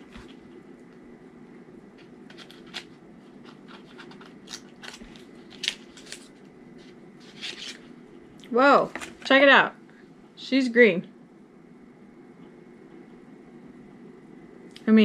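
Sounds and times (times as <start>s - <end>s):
low hum: 0.0s - 9.0s, 9.6s - 15.0s
packaging clicks and crinkles: 2.0s - 6.5s.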